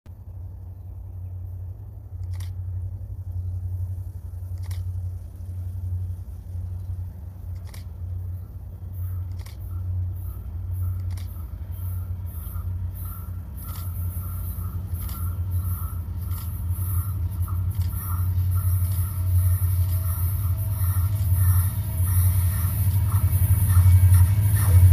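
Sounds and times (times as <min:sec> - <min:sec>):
steady low hum: 0:00.1 - 0:24.9
high-pitched pulsing: 0:09.0 - 0:24.9.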